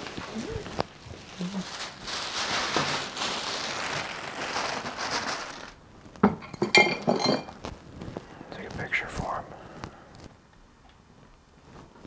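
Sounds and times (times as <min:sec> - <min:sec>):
rustling hiss: 0:00.0 - 0:06.2.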